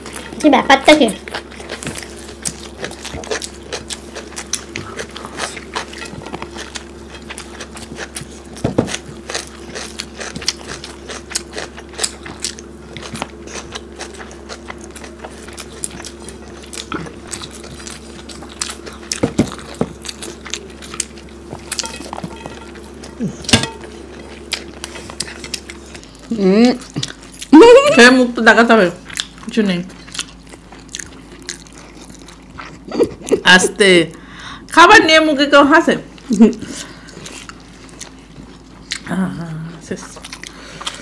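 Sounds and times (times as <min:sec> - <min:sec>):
low steady hum: 0:00.0 - 0:41.0
chewing and lip smacks: 0:01.2 - 0:27.5, 0:29.0 - 0:33.4, 0:36.2 - 0:39.1, 0:40.0 - 0:41.0.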